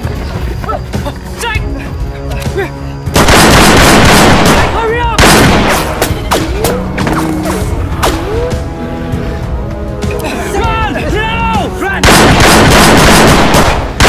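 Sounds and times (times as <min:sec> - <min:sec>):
film soundtrack music: 0:00.0 - 0:14.0
loud rushing blasts: 0:12.0 - 0:14.0.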